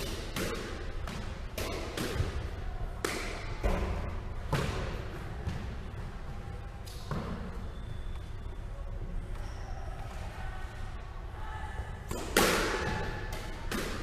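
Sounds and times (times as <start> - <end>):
squash ball hitting rackets and walls: 0.0 - 6.0, 6.8 - 7.8, 12.1 - 14.0.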